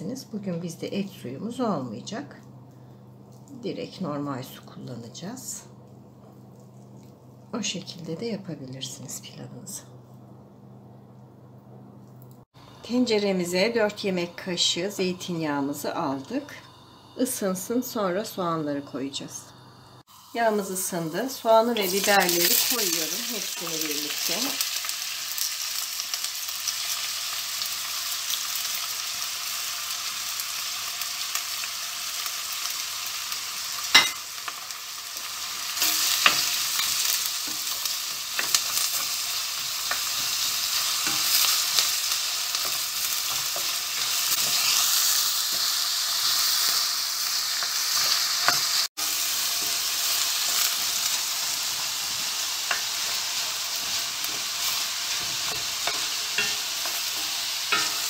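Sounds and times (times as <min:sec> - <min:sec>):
vegetables sizzling in oil: 0:12.5 - 0:58.0.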